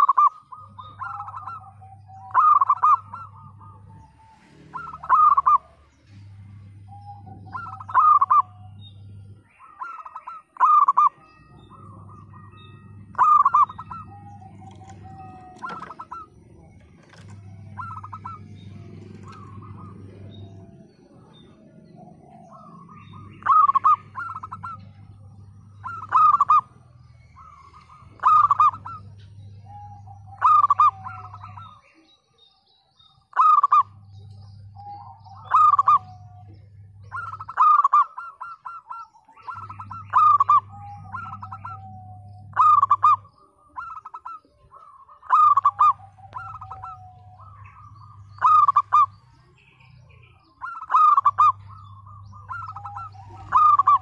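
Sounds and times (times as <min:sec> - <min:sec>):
dove cooing: 0:00.0 - 0:32.0, 0:33.3 - 0:54.0.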